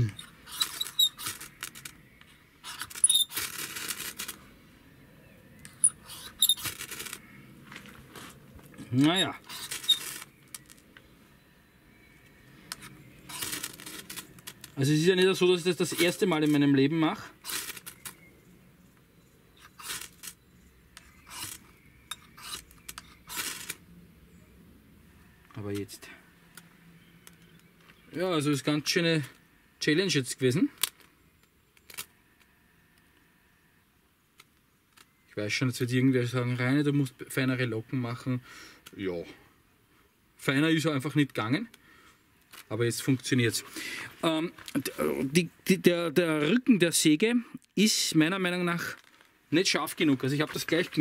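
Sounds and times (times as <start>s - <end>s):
metal scraping ferro rod: 21.2s - 23.8s.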